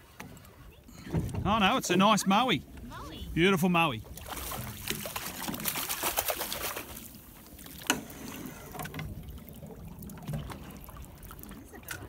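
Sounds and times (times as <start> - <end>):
fish thrashing in water: 4.1 - 12.0.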